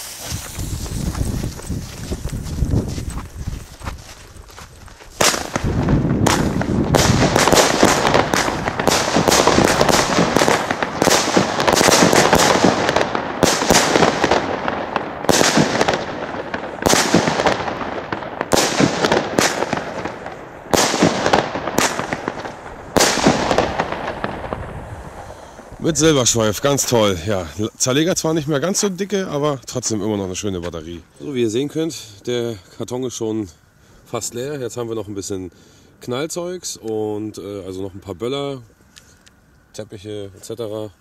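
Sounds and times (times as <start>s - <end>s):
fireworks shots bursting: 0.0s - 2.6s, 5.1s - 29.3s
fireworks crackle and hiss: 0.0s - 41.0s.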